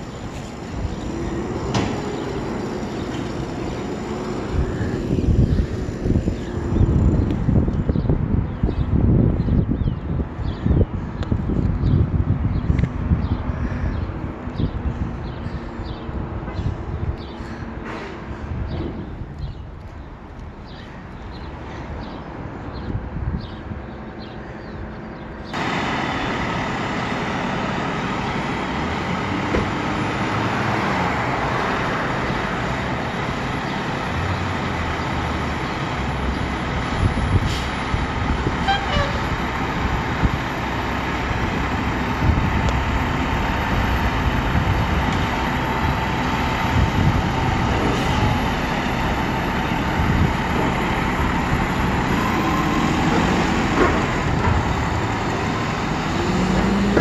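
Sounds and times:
fire truck diesel engine: 0.0s - 9.2s, 25.5s - 57.0s.

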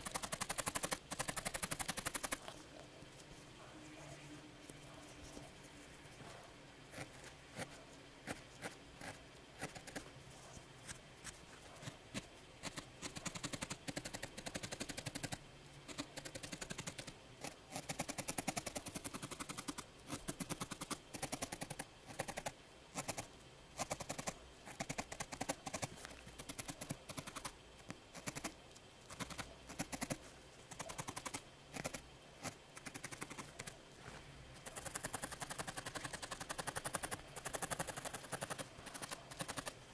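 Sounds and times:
felting needle poking wool: 0.0s - 3.4s, 6.9s - 28.5s.

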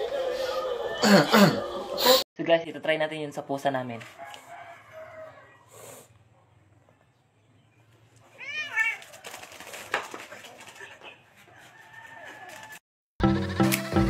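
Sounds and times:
cat meowing: 8.4s - 9.1s
cat scrambling on hard floor: 8.4s - 11.0s.

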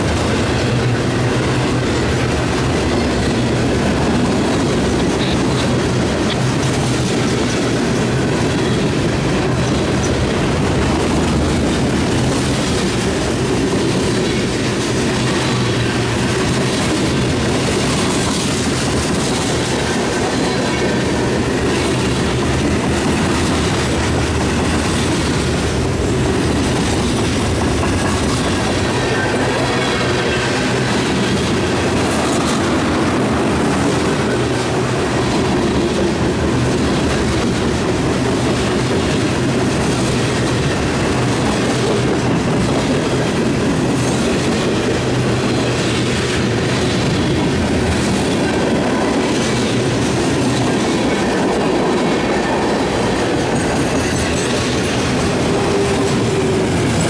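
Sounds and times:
steel wheels rumbling on rails: 0.0s - 57.0s
wheelsets clickety-clack: 1.7s - 57.0s.

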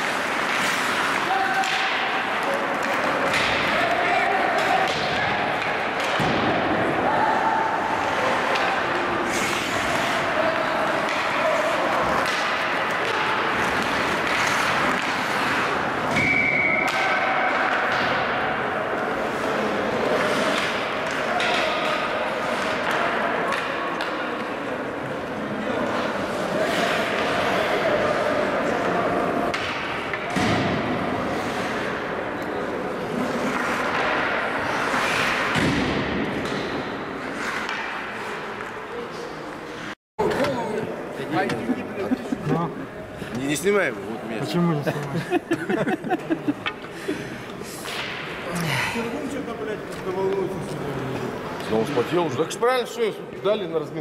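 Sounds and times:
skates cutting ice: 0.0s - 4.9s, 8.0s - 16.1s, 32.9s - 36.5s
hockey sticks knocking puck: 0.0s - 6.9s, 8.0s - 25.2s, 28.7s - 31.8s, 33.1s - 38.8s
whistle blast: 16.2s - 16.9s.

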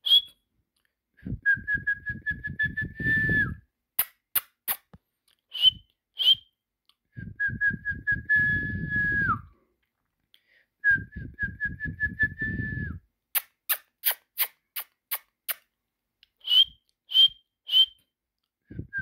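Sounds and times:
person whistling for a dog: 0.0s - 0.4s, 1.2s - 3.7s, 5.5s - 9.6s, 10.8s - 13.0s, 16.4s - 19.0s.

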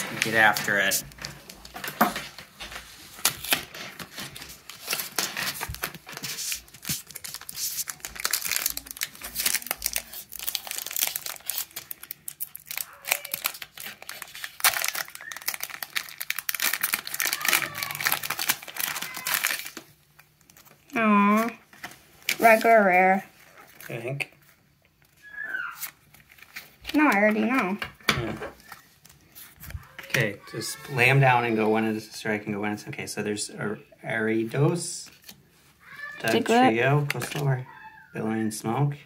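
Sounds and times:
foil pack crinkling and tearing: 0.1s - 22.8s.

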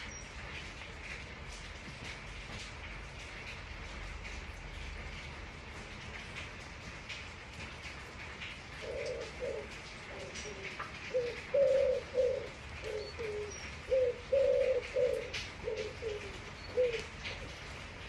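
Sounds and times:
steady rain: 0.0s - 18.0s
water dripping: 0.0s - 18.0s
pigeon cooing: 8.8s - 17.5s.

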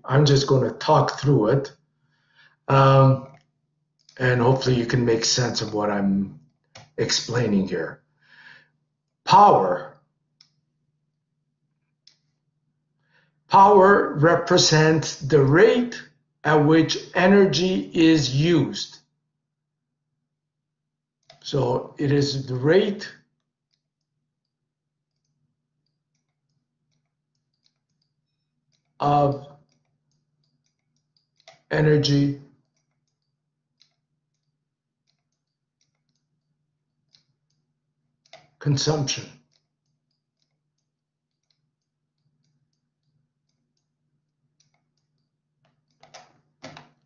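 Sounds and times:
stylus clicking on tablet screen: 3.1s - 4.2s, 6.4s - 7.4s, 9.0s - 12.5s, 21.2s - 21.6s, 22.9s - 47.0s.

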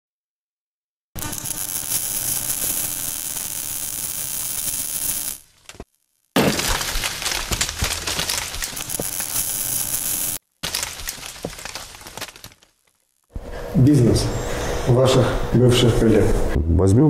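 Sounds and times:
dense crackling and clicks: 1.2s - 13.4s.

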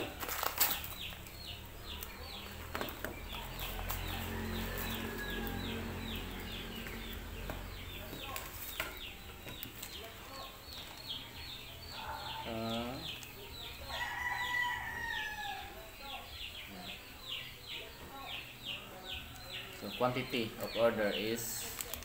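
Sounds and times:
plastic packaging crinkling: 0.0s - 1.3s, 21.6s - 22.0s
chicks peeping: 0.0s - 22.0s
rooster crowing: 3.9s - 6.4s, 13.8s - 15.8s.

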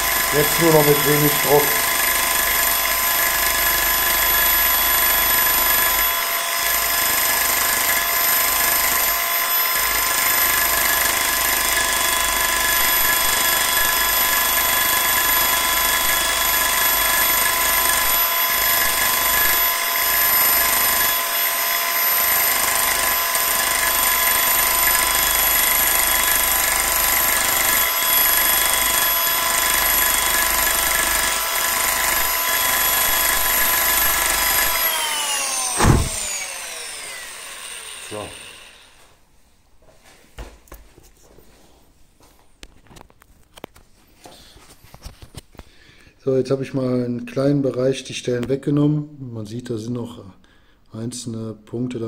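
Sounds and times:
electric power scraper buzzing whine: 0.0s - 39.1s.

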